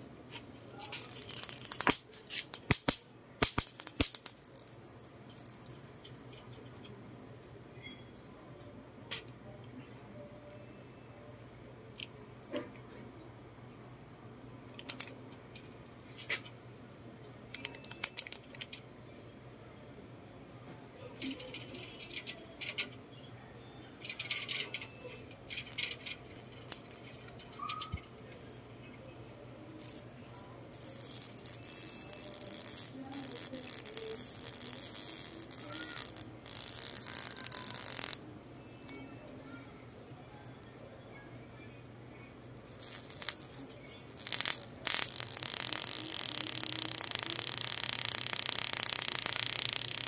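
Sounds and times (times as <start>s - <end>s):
electric bug zapper crackling: 0.3s - 6.8s, 18.0s - 23.0s, 24.0s - 28.6s, 29.6s - 38.2s, 42.2s - 50.0s.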